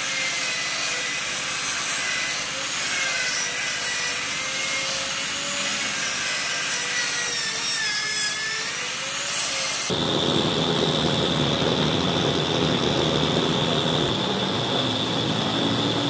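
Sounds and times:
motor whine: 0:09.8 - 0:16.0.

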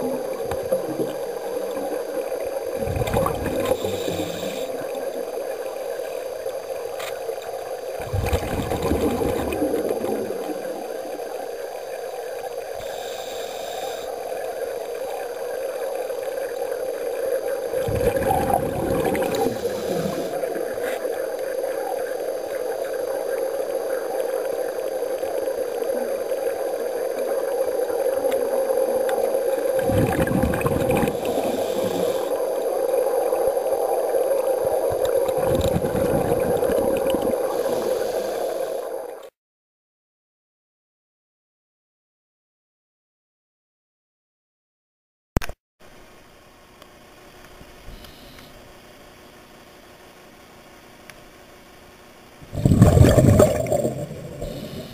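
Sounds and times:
scuba exhaust bubbles: 0:00.0 - 0:39.2, 0:52.4 - 0:54.9
steady underwater hum: 0:00.0 - 0:39.3, 0:45.8 - 0:54.9.

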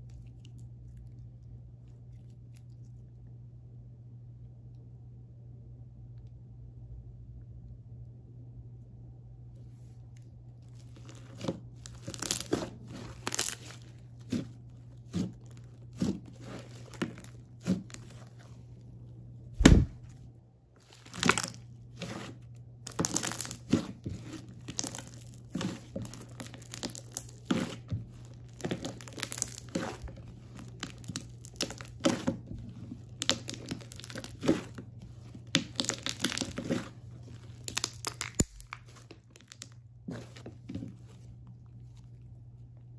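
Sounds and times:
faint low hum: 0:00.0 - 0:42.9
hands squishing slime: 0:10.5 - 0:18.8, 0:19.6 - 0:20.2, 0:20.8 - 0:42.4
crackles and pops of slime: 0:10.6 - 0:18.6, 0:20.8 - 0:41.0
loud thump: 0:19.6 - 0:20.1.

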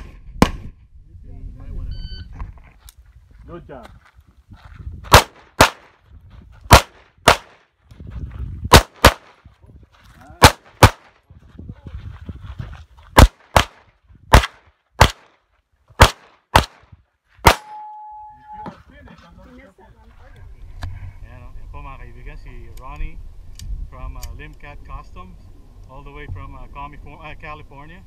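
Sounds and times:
pistol shots in quick pairs: 0:05.1 - 0:05.9, 0:06.7 - 0:07.6, 0:08.7 - 0:09.3, 0:10.4 - 0:11.1, 0:13.2 - 0:15.3, 0:16.0 - 0:16.8, 0:17.4 - 0:17.8.

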